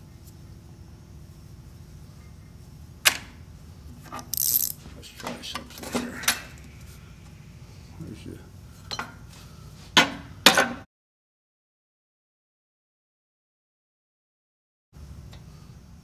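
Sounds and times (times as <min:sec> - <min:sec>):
metal parts clinking: 0:04.1 - 0:04.8.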